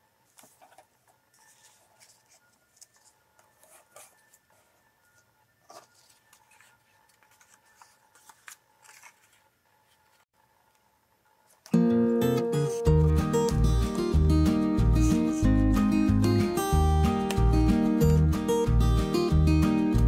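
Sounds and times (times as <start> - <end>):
paper rustling: 0.2 - 4.8, 5.6 - 10.2.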